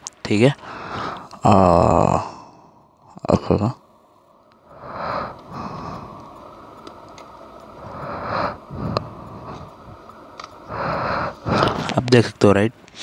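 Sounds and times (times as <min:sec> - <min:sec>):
faint plastic clicks: 0:06.2 - 0:07.7
breaths and sniffs: 0:07.8 - 0:10.0, 0:10.6 - 0:12.0.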